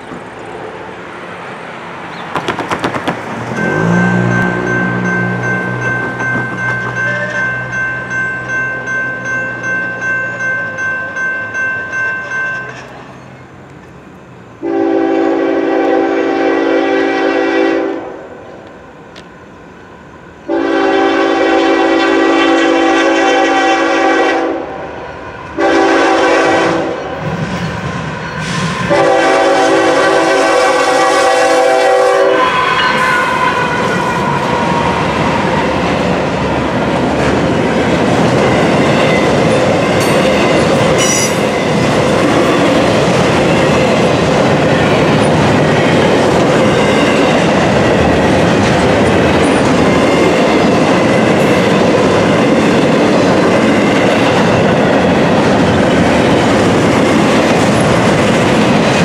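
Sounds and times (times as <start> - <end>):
train wheels clattering: 2.2 - 14.0, 27.1 - 59.0
locomotive air horn blasts: 14.6 - 18.3, 20.5 - 24.8, 25.6 - 27.2, 28.9 - 34.6.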